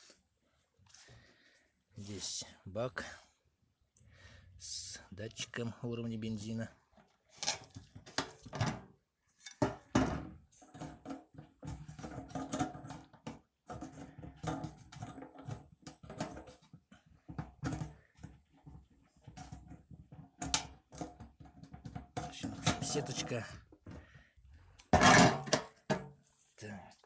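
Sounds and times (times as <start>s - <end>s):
clicks and knocks on metal tank: 9.5s - 23.4s, 24.9s - 26.2s.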